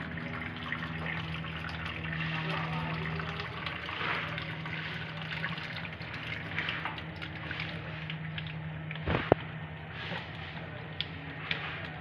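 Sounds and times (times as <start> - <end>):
water pouring into steel sink: 0.0 - 8.6.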